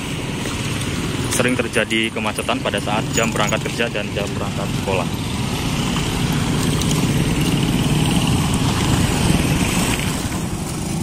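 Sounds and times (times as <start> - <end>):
motorcycles and scooters riding past: 2.5 - 11.0.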